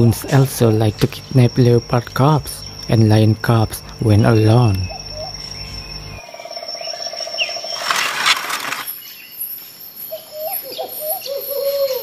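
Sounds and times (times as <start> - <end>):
high insect drone: 0.0 - 11.9.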